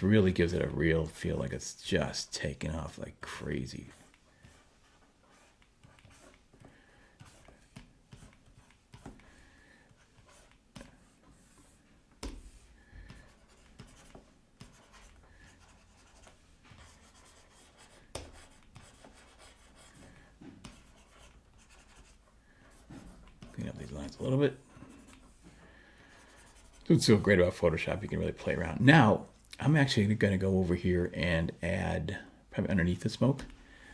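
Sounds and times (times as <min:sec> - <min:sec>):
stylus scratching on tablet: 0:03.8 - 0:09.3, 0:09.9 - 0:25.5, 0:26.1 - 0:27.2.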